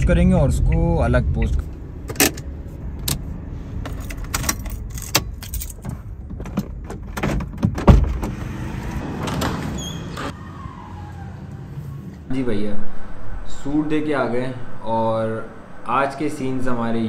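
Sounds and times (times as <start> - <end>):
keys jangling: 3.9 - 6.0
car door opening with thump: 5.8 - 8.4.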